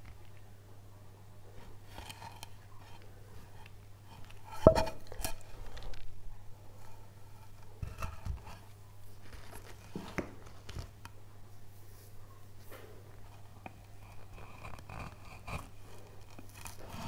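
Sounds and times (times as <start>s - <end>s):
faint low hum: 0.0s - 17.0s
wooden panel and tools knocking: 4.6s - 5.0s.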